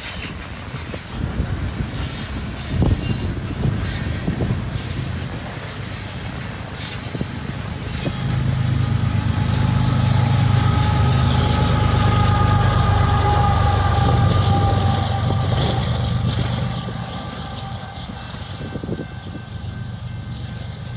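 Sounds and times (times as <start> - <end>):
locomotive engine drone: 0.0 - 20.9
thin whine: 6.9 - 20.9.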